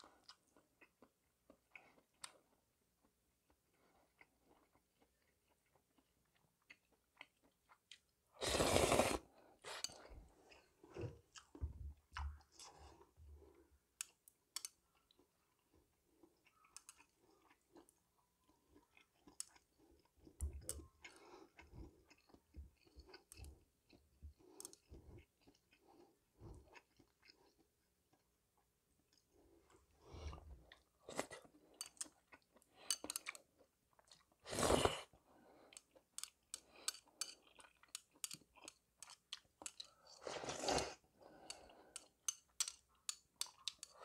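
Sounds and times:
noodle slurp: 0:08.4 - 0:10.0.

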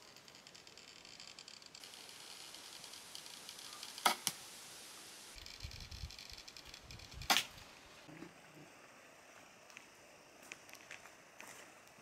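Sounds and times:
steady high hiss: 0:00.0 - 0:12.0
wooden crossbow snapping: 0:04.0 - 0:04.4, 0:07.3 - 0:07.5.

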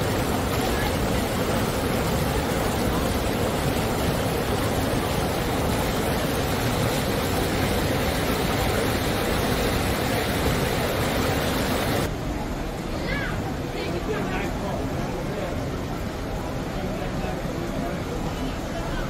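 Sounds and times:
river water rushing: 0:00.0 - 0:19.0.

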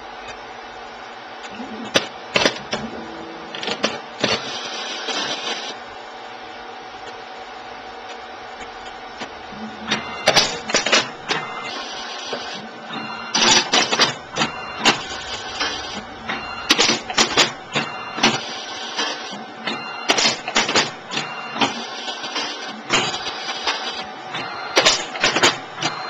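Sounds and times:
steady machine hum: 0:00.0 - 0:26.0
mechanical clicks and clunks: 0:01.4 - 0:04.5, 0:08.1 - 0:21.8.

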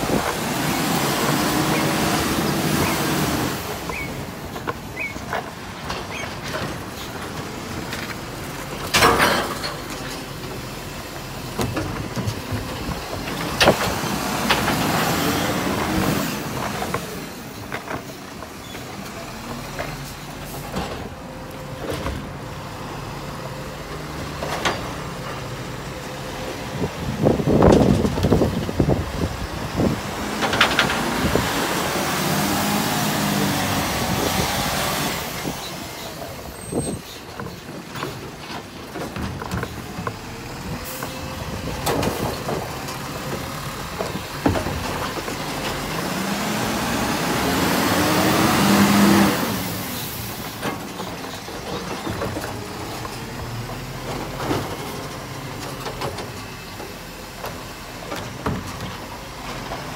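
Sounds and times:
truck engine and hydraulics whining: 0:00.0 - 0:59.9
bins knocking and clattering: 0:03.7 - 0:10.7, 0:11.5 - 0:18.9, 0:26.8 - 0:31.5, 0:36.6 - 0:46.3, 0:50.3 - 0:59.9.

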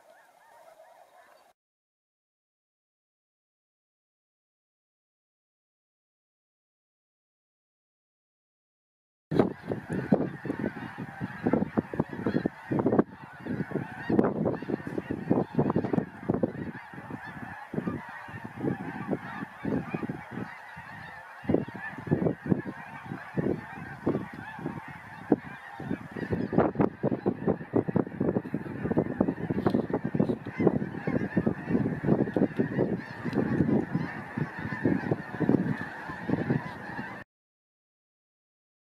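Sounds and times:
geese honking: 0:00.0 - 0:01.5, 0:09.4 - 0:37.2.

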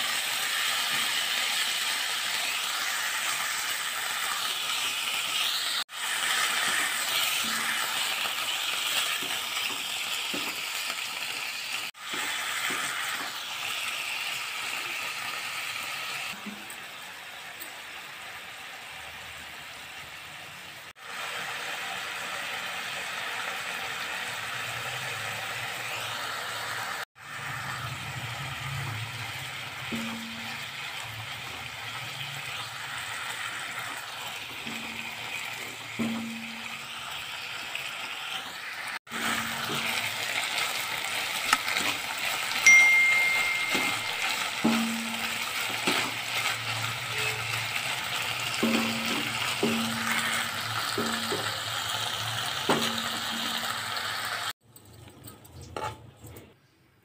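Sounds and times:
chicken sizzling in hot oil: 0:00.0 - 0:54.9
spatula stirring and knocking pan: 0:06.3 - 0:11.4, 0:12.0 - 0:13.5, 0:29.4 - 0:37.2, 0:39.1 - 0:40.8, 0:41.4 - 0:54.0.

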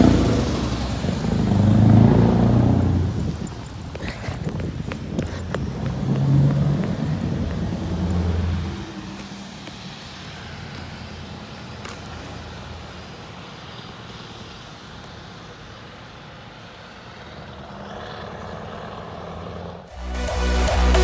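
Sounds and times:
diesel truck engine droning: 0:00.0 - 0:11.4.

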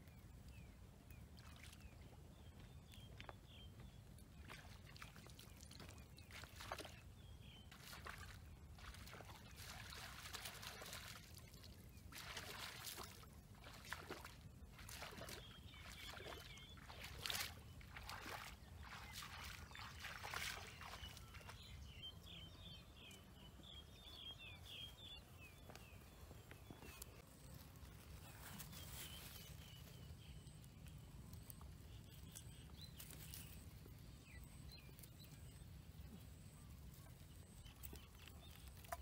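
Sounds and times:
feet splashing through muddy water: 0:04.2 - 0:22.0
bird chirping: 0:15.1 - 0:39.0.

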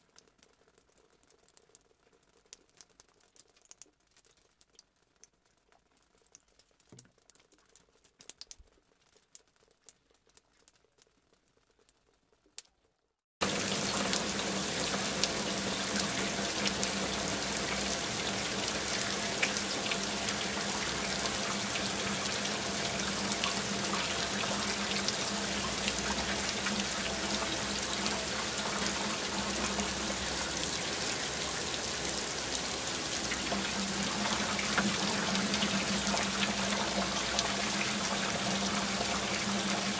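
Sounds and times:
heavy rain pouring: 0:13.4 - 0:39.9.

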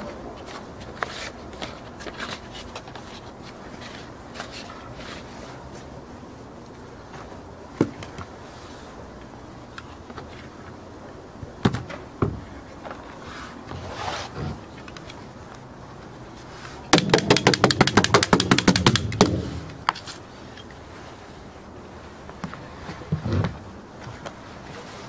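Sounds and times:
hammer nailing wooden shingles: 0:16.9 - 0:20.0.

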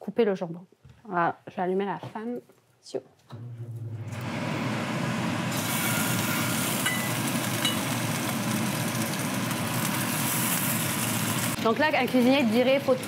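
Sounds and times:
range hood fan humming: 0:03.3 - 0:13.0.

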